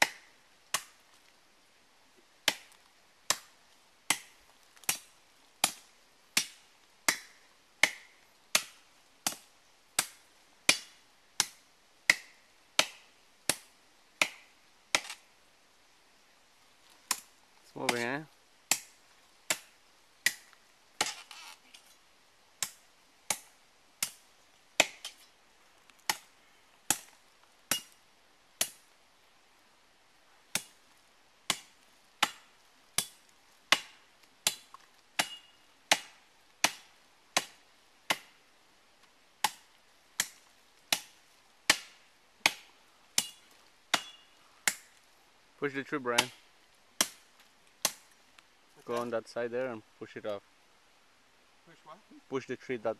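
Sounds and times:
blade chopping palm trunk: 2.4 - 3.5, 6.4 - 9.4, 10.0 - 15.2, 24.8 - 25.2, 26.9 - 27.9, 31.5 - 38.3, 40.2 - 44.9, 47.0 - 47.2, 47.8 - 48.0.

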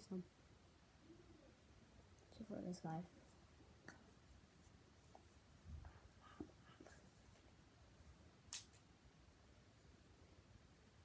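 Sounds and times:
handling noises with soft taps: 2.2 - 8.7.

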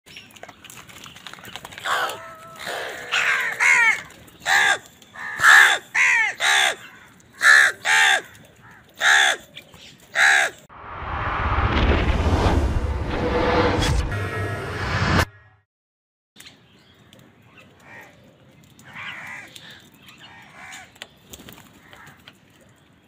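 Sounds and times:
crows cawing: 1.8 - 9.5, 10.1 - 10.7, 17.8 - 18.2, 18.8 - 21.0, 21.7 - 22.4
rising whoosh of noise: 10.7 - 15.3.

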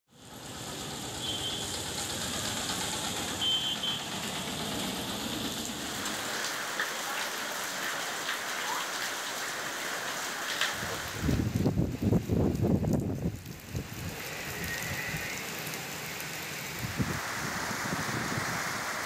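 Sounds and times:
vehicle traffic rumbling: 0.1 - 8.2, 12.6 - 19.0
steady rain falling: 0.1 - 19.0.

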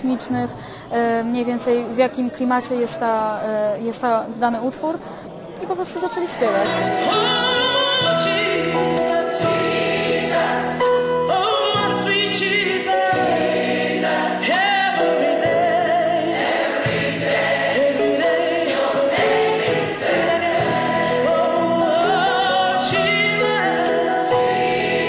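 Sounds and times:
gospel choir singing: 6.1 - 25.0.

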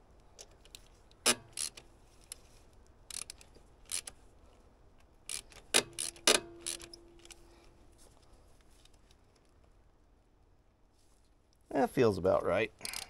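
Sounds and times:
socket ratchet clicking: 0.4 - 2.4, 3.1 - 4.2, 5.2 - 7.4.

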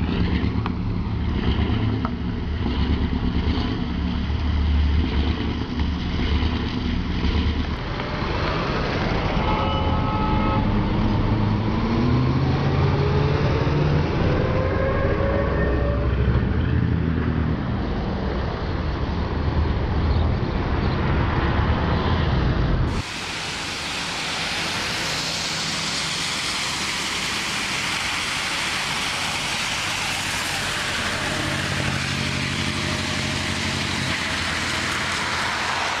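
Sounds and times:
bus engine running: 0.0 - 14.5, 22.4 - 36.0
street noise hiss: 0.0 - 15.0, 16.2 - 36.0.

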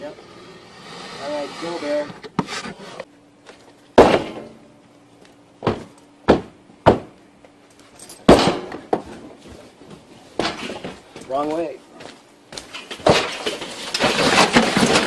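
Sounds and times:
sharp bangs and thuds: 4.0 - 4.6, 5.6 - 7.2, 8.3 - 9.1.

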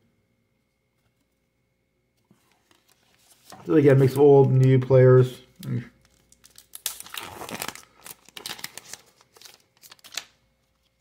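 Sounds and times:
sharp wrapper crack: 6.0 - 10.4
wrapper tearing and crinkling: 6.0 - 11.0.

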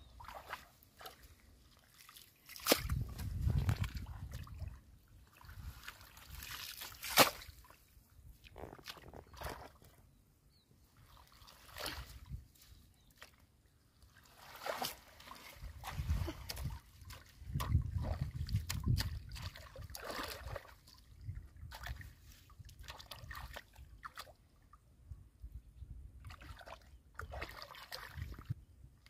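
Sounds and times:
hands splashing in muddy water: 0.2 - 7.8, 11.1 - 12.4, 14.1 - 21.0, 26.2 - 28.5.

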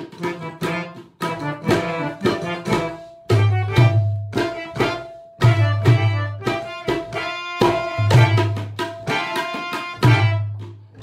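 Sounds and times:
harmonium melody: 0.0 - 11.0
tabla strokes: 0.0 - 11.0.

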